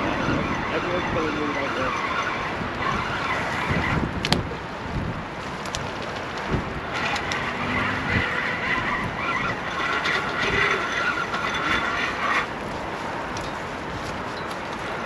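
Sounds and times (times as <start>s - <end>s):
fishing reel whirring: 6.9s - 12.6s.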